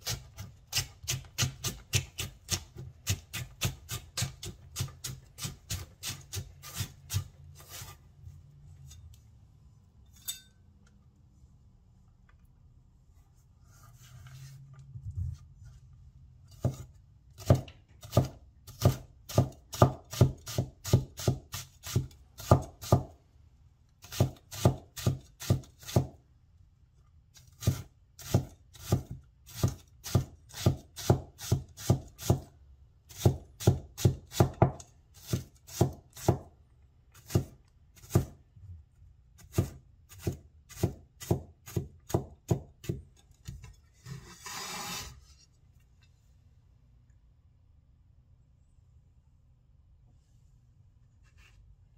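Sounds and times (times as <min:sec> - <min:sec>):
soft shuffle of vegetables: 0:11.2 - 0:16.8, 0:50.0 - 0:51.9.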